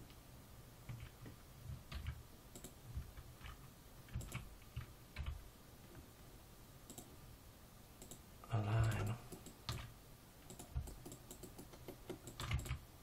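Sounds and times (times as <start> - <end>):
keyboard and mouse clicks: 0.9 - 5.4, 6.9 - 7.1, 8.0 - 8.2, 8.8 - 12.8.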